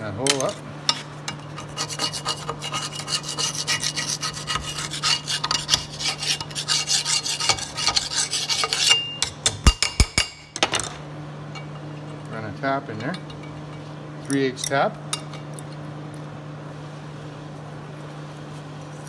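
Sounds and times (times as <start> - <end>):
steady low hum: 0.0 - 19.0
metal file rasping: 0.9 - 9.2.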